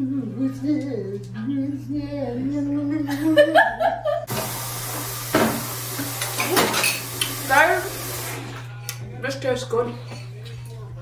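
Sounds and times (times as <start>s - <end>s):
food sizzling in a pan: 4.3s - 8.6s.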